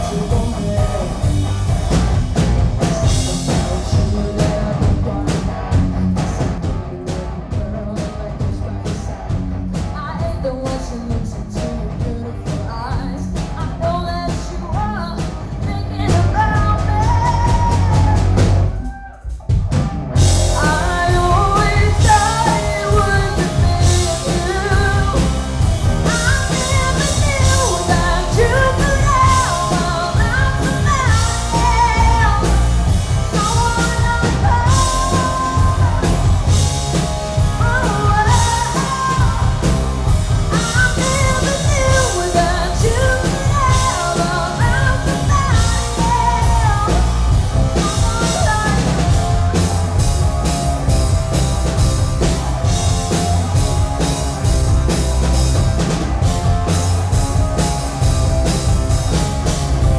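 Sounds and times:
woman singing: 0.0s - 1.5s, 3.0s - 5.5s, 6.1s - 9.1s, 9.9s - 18.6s, 20.5s - 49.6s
drum kit: 0.0s - 59.9s
electric bass: 0.0s - 59.9s
electric guitars: 0.0s - 59.9s.

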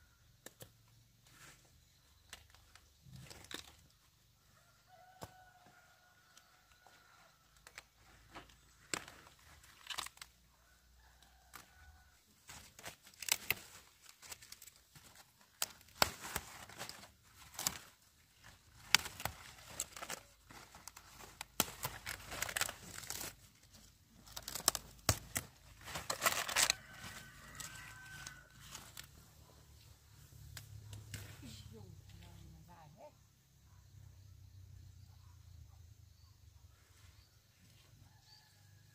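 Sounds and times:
leaves rustling and tearing: 0.5s - 10.4s, 11.0s - 29.3s.

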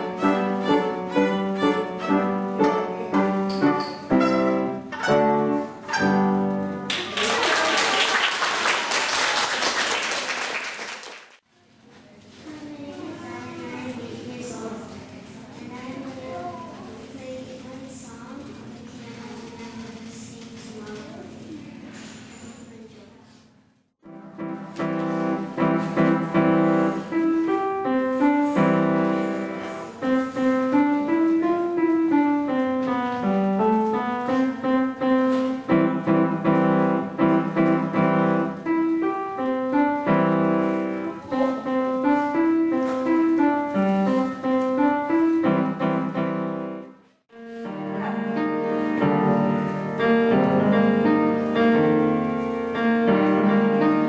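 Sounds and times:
solo piano playing: 0.0s - 7.0s, 24.0s - 54.0s.

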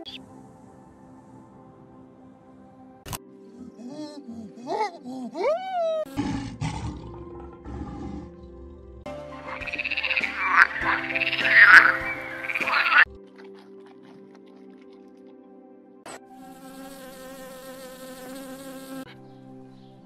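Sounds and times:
faint background music: 0.0s - 20.0s
lion growl: 6.1s - 14.8s
frog rattling croaks: 9.4s - 13.1s
monkey calls: 9.4s - 13.1s.

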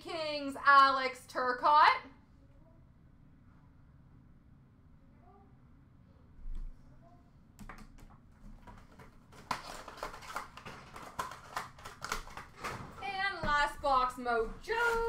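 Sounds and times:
card packaging clicks and rustles: 7.6s - 13.0s.

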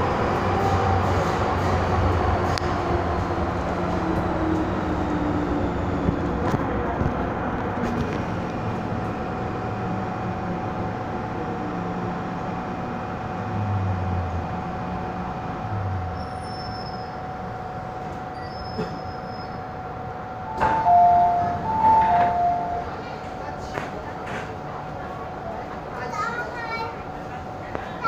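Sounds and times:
train running rumble: 0.0s - 28.0s
two-tone door chime: 20.5s - 23.0s.

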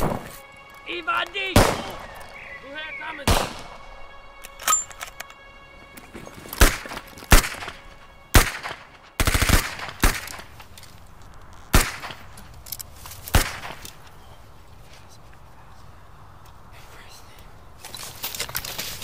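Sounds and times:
rifle shots: 0.0s - 0.3s, 1.6s - 2.2s, 3.3s - 3.8s, 6.6s - 7.8s, 8.4s - 10.5s, 11.7s - 12.3s, 13.3s - 13.8s
rapid gunfire burst: 9.2s - 10.2s.

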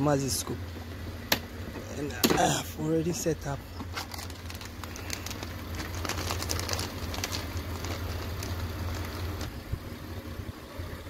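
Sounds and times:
car engine idling: 0.0s - 11.0s
plastic rustling: 3.7s - 9.6s.

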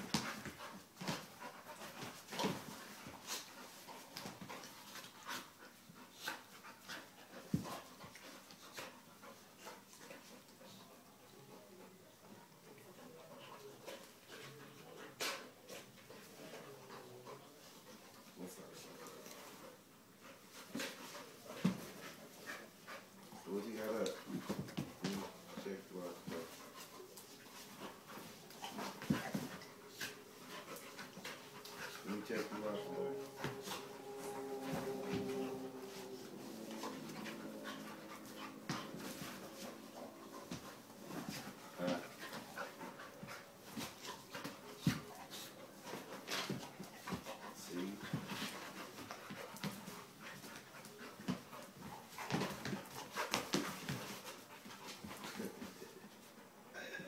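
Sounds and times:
dogs panting and snuffling: 0.0s - 56.8s.

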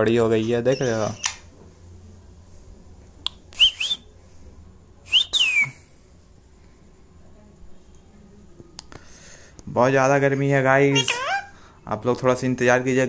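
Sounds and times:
parakeet whistled calls: 10.9s - 11.5s.

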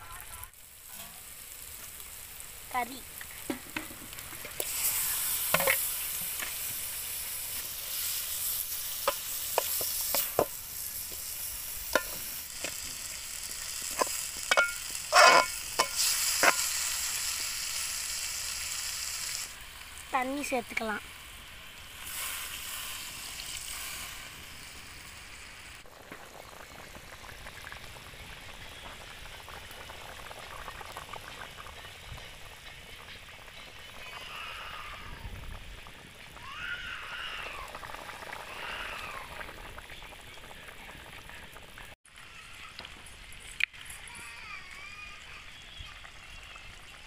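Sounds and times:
gravy boiling in a pot: 0.0s - 47.0s.

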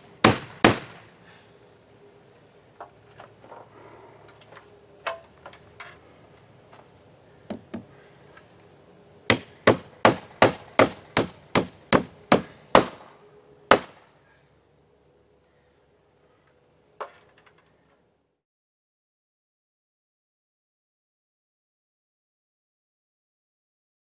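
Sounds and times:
hammer nailing wood board: 9.3s - 13.0s.

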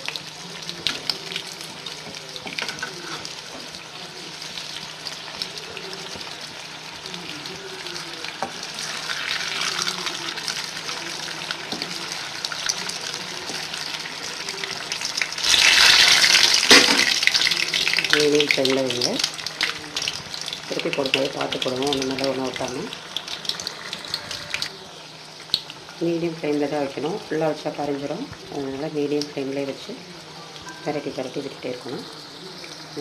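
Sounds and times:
food sizzling in hot oil: 0.0s - 33.0s
slotted spoon moving in oil: 0.8s - 3.7s.

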